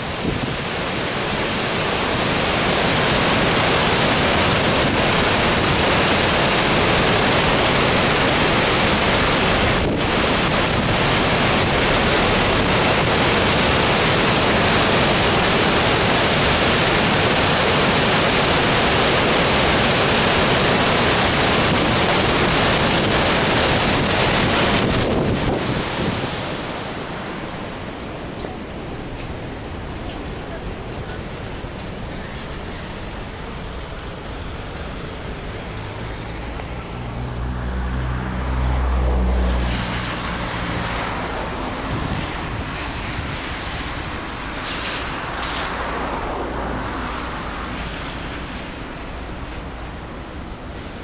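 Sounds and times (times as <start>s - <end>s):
wind buffeting microphone: 0.0s - 1.1s, 21.0s - 48.6s
roar of rushing water: 0.0s - 51.0s.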